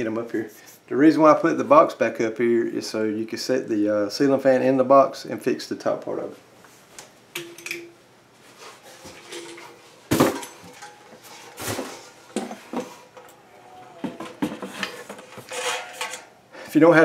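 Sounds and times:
ceiling fan knocking and clinking: 7.3 - 8.0, 9.1 - 13.4.

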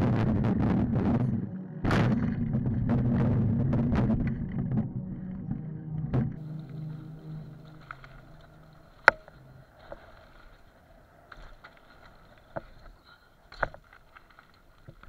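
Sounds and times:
bike clicks and knocks over bumps: 9.0 - 15.0.

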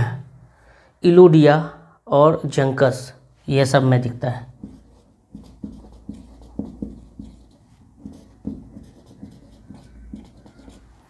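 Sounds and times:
pen scratching and tapping: 4.6 - 11.0.

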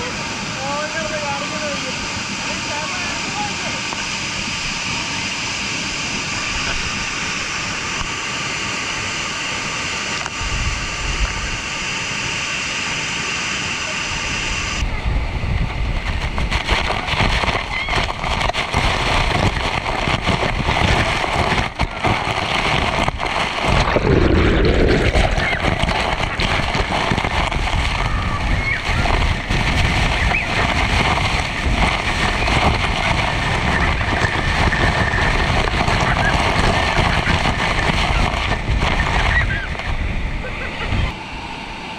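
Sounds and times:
waterfall rushing: 0.0 - 14.8, 16.0 - 41.9
low rumble: 14.6 - 41.2.

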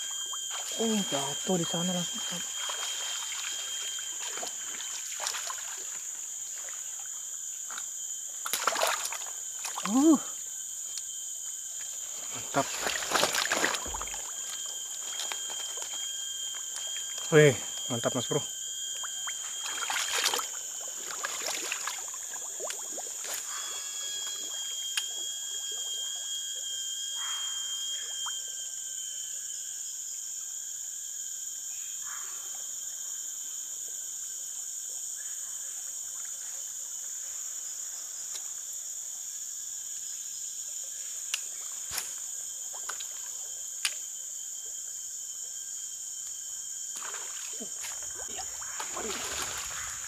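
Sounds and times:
thin whine: 0.0 - 30.1
insects droning: 0.0 - 50.0.

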